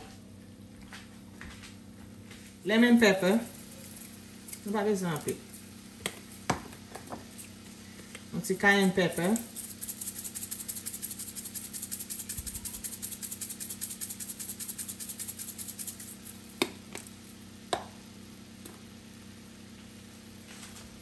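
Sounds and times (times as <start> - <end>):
spice shaker rattling: 3.4 - 4.7, 8.5 - 16.6.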